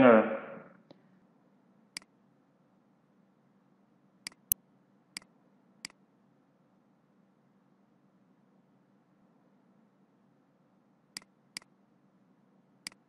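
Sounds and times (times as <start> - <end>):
mouse and keyboard clicks: 4.3 - 4.6.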